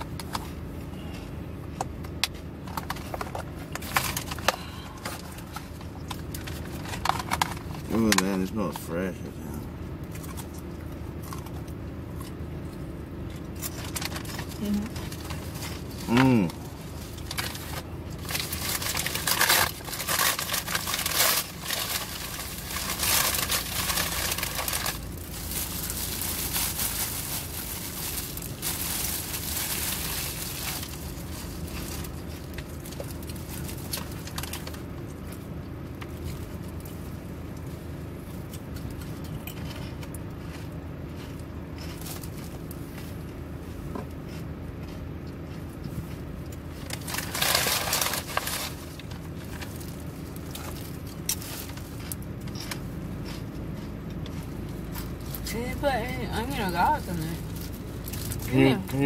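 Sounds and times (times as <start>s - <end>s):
steady low hum: 0.0s - 59.0s
plastic wrap crinkling: 13.6s - 35.4s, 46.8s - 52.8s.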